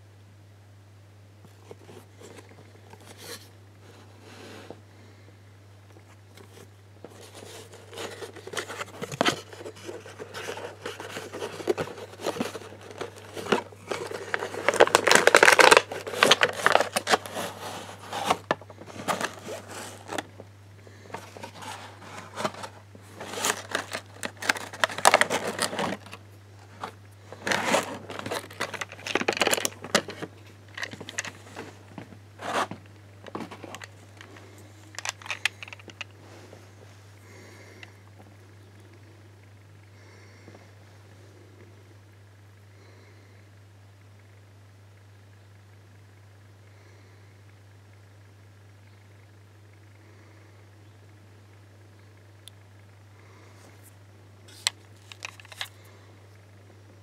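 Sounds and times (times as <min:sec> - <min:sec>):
low steady hum: 0:00.0 - 0:57.0
plastic packaging crinkling: 0:06.4 - 0:20.4, 0:21.1 - 0:36.2, 0:54.5 - 0:55.8.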